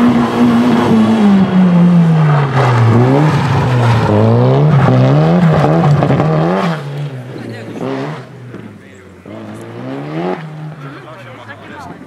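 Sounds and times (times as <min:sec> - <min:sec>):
rally car engine revving: 0:00.0 - 0:12.0.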